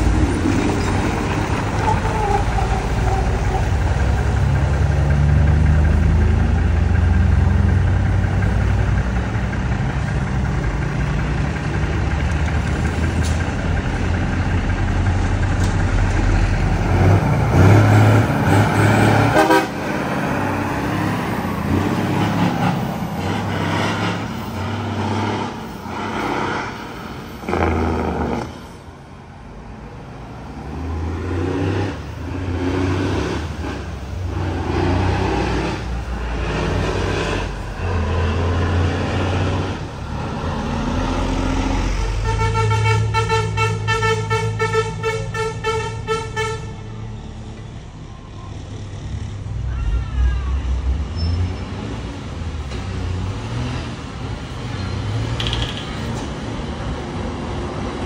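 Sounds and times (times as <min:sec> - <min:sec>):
passing traffic: 0:00.0 - 0:58.0
trucks passing: 0:00.0 - 0:58.0
vehicle horn toot: 0:19.3 - 0:19.8, 0:42.2 - 0:46.8.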